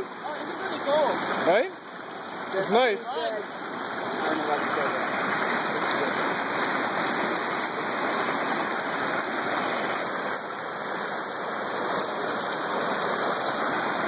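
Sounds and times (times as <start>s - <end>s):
water rushing over rocks: 0.0s - 14.0s.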